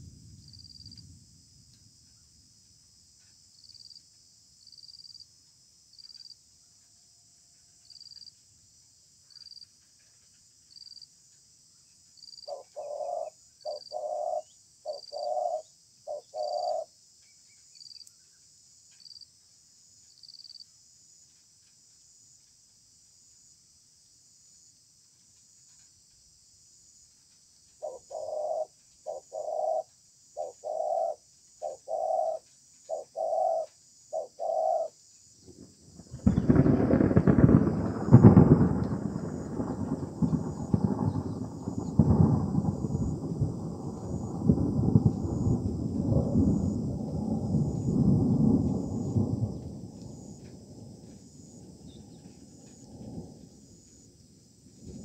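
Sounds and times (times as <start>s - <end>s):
high insect buzz: 0.0s - 55.0s
dove cooing: 12.5s - 16.9s, 27.8s - 35.0s.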